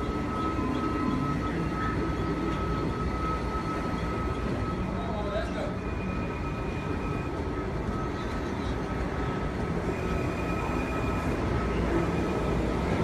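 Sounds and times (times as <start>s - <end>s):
high-pitched whine: 0.0s - 13.0s
train wheels rumbling on rails: 0.0s - 13.0s.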